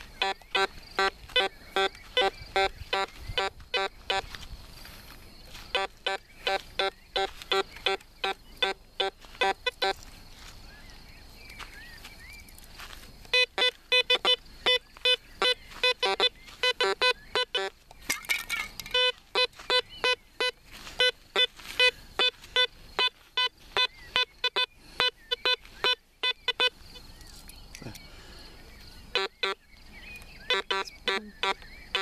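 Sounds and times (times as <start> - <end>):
metal detector beeping: 0.0 - 4.4, 5.5 - 10.0, 13.2 - 27.0, 29.1 - 29.6, 30.5 - 32.0.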